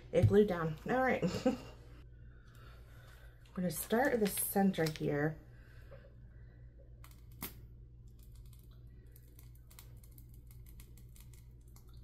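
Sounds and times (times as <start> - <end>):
low steady hum: 0.0 - 12.0
plastic piping bag crinkling: 8.2 - 12.0.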